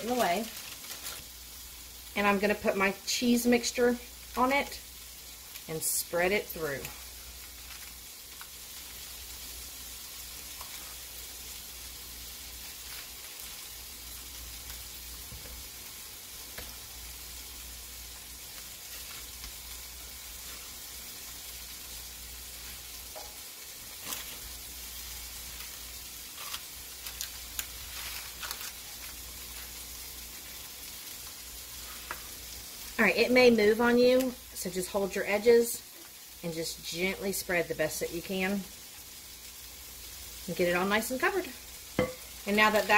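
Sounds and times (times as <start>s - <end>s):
steady hiss: 0.0s - 42.9s
spatula tapping and scraping: 42.0s - 42.9s.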